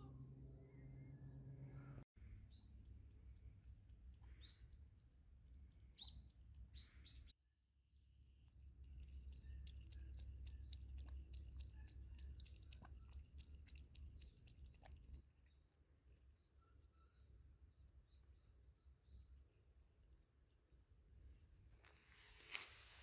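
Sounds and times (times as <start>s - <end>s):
bird chirping: 4.2s - 4.8s, 5.8s - 7.3s, 8.8s - 15.0s, 16.2s - 20.8s
cat lapping water: 8.4s - 16.0s.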